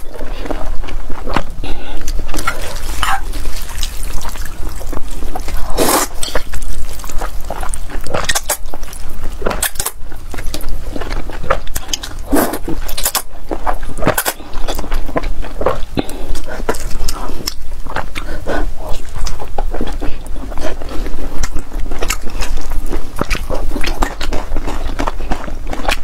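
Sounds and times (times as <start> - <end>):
noodles being slurped: 1.6 - 14.8.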